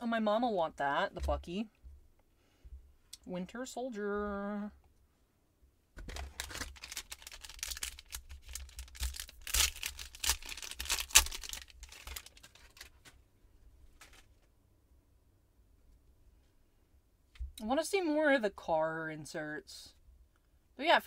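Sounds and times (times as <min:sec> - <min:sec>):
foil wrapper tearing and crinkling: 0:06.0 - 0:13.2.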